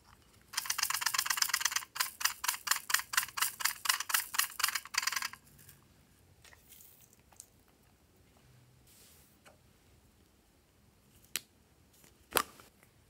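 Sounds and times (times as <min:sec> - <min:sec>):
quick regular clicks: 0:00.5 - 0:05.4
flakes rattling in plastic container: 0:00.6 - 0:05.5.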